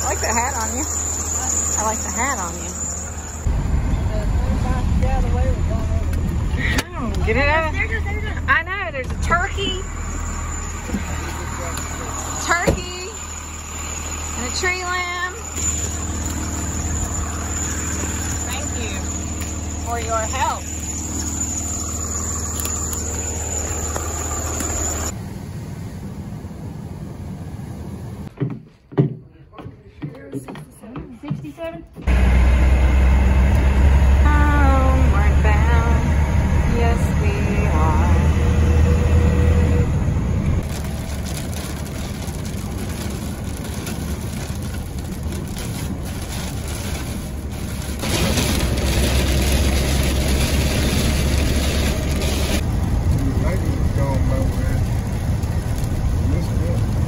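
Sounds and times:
high whine: 0.0 - 6.7, 7.3 - 28.3
vehicle engine idling: 0.0 - 28.3, 32.0 - 57.0
road noise inside vehicle cab: 0.0 - 28.4, 31.8 - 57.0
rain on windshield: 40.6 - 57.0.

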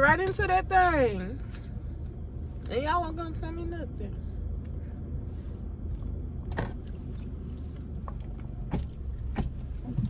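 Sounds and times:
engine and road rumble: 0.0 - 10.0.

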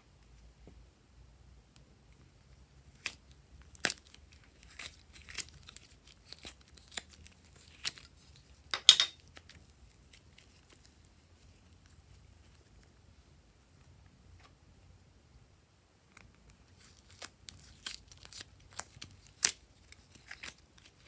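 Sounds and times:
plastic mold crackling: 16.1 - 21.0.

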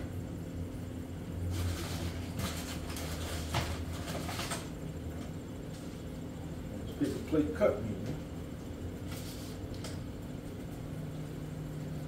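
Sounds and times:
low steady hum: 0.0 - 12.0
paper plates knocking and rustling: 1.6 - 4.7.

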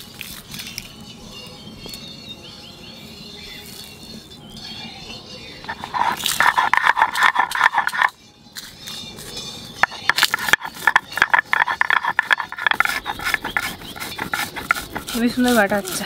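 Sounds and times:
stone grinding spices: 5.6 - 8.2, 9.8 - 16.0.

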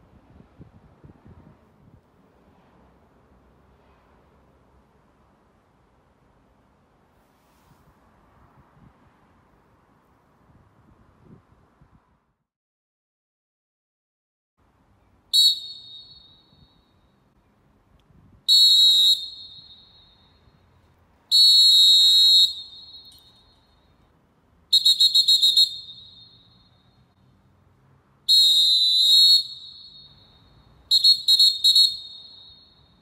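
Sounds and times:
referee's whistle blasts: 15.4 - 16.8, 18.5 - 20.4, 21.3 - 23.5, 24.7 - 26.7, 28.3 - 33.0.

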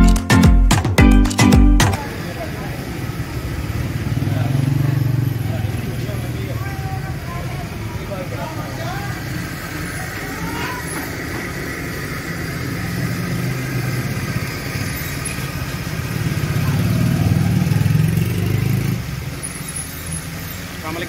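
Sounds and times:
street noise: 0.0 - 21.0.

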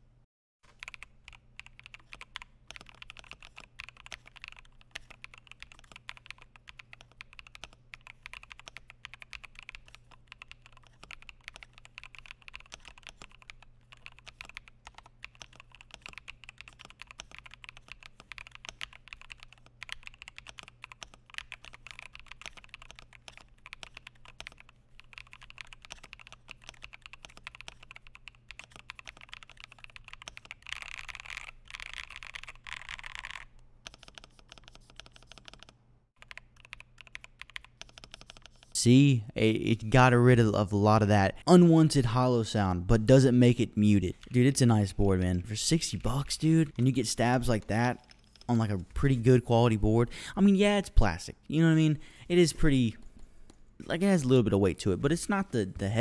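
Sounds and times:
fast typing on keyboard: 0.7 - 38.8.

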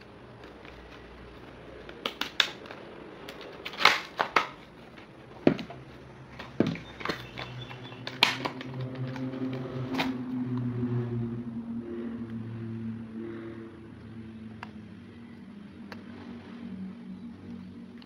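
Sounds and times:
plastic packaging crackling: 0.0 - 10.1
low steady hum: 0.0 - 18.0.

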